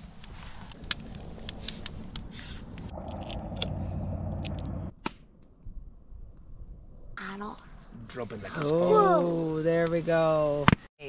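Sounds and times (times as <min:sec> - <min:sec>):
sharp clicks and scraping: 0:00.0 - 0:05.5
steady low rumble: 0:00.0 - 0:08.5.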